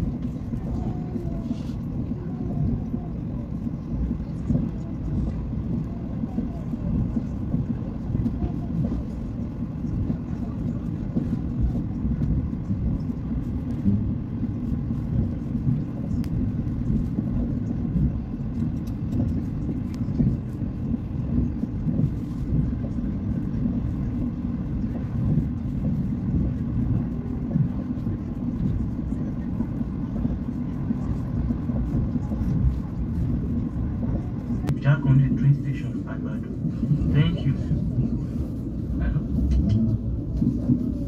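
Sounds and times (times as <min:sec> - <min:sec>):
train rumbling on track: 0:00.0 - 0:41.0.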